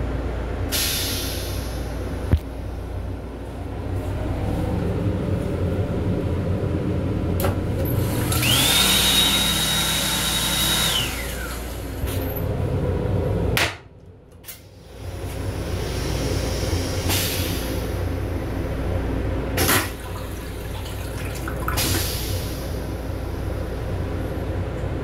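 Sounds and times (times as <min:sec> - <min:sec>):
railcar low rumble: 0:00.0 - 0:08.6, 0:10.9 - 0:25.0
faucet whine: 0:08.0 - 0:12.0, 0:19.8 - 0:22.6
faucet water running: 0:19.9 - 0:22.1.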